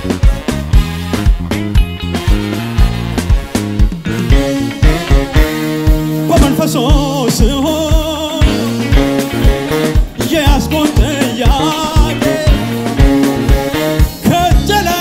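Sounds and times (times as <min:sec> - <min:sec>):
bass guitar: 0:00.0 - 0:15.0
electric guitar: 0:00.0 - 0:15.0
man singing: 0:06.2 - 0:09.5, 0:10.1 - 0:13.3, 0:14.0 - 0:15.0.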